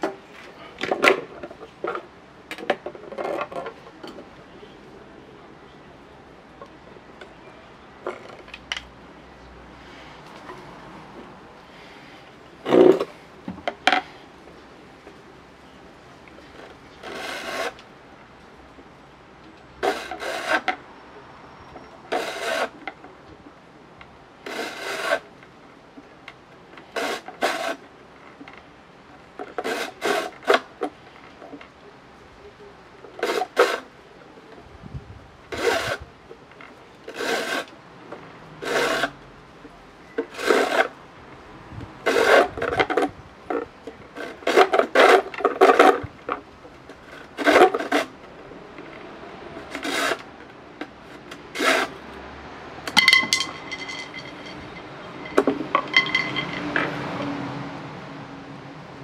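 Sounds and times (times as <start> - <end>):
knife scraping a fishing rod: 16.6 - 17.8, 19.8 - 20.7, 22.1 - 22.8, 24.4 - 25.2, 26.9 - 27.8, 29.6 - 30.7, 33.2 - 33.9, 35.5 - 36.0, 37.1 - 37.7, 38.6 - 39.2, 40.2 - 41.0, 42.0 - 43.6, 44.2 - 46.0, 47.0 - 48.2, 49.6 - 50.3, 51.1 - 52.0, 52.9 - 56.6.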